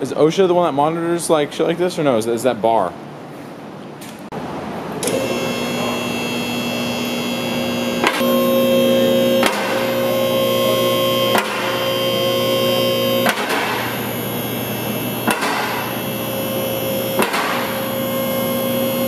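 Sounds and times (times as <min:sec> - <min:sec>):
hydraulic pump motor humming: 0:04.9 - 0:19.0.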